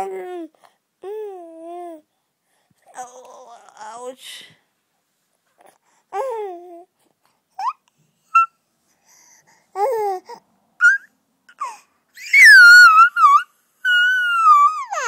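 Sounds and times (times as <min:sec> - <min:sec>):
baby babbling: 0:05.6 - 0:07.0, 0:07.6 - 0:08.6, 0:09.7 - 0:15.0
baby high-pitched squeal: 0:07.6 - 0:08.6, 0:10.8 - 0:15.0.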